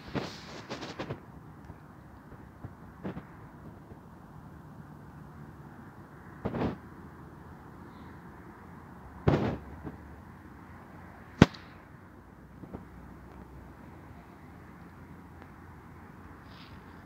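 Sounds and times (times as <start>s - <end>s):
very sharp crack: 9.2s - 9.7s, 11.3s - 11.9s
faint pop: 11.4s - 11.7s.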